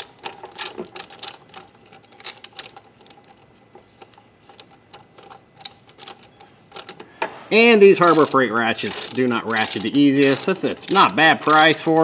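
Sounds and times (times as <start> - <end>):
socket ratchet clicking: 8.0 - 12.0.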